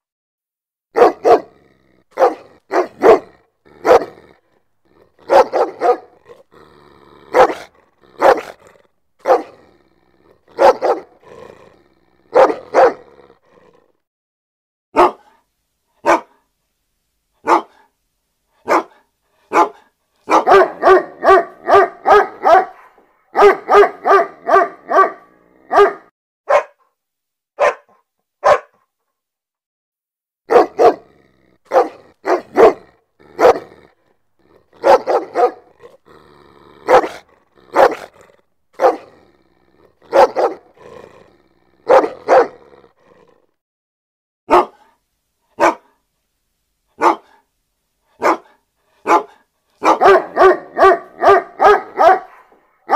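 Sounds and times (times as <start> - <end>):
dog barking: 0.9 - 4.4, 5.0 - 6.4, 7.3 - 9.6, 10.5 - 11.3, 12.3 - 13.2, 14.9 - 15.4, 16.0 - 16.5, 17.4 - 17.9, 18.6 - 26.9, 27.6 - 28.9, 30.5 - 31.1, 31.7 - 33.9, 34.6 - 36.0, 36.8 - 38.2, 38.8 - 39.2, 40.0 - 40.8, 41.8 - 42.7, 44.5 - 45.0, 45.6 - 46.0, 47.0 - 47.4, 48.2 - 52.9.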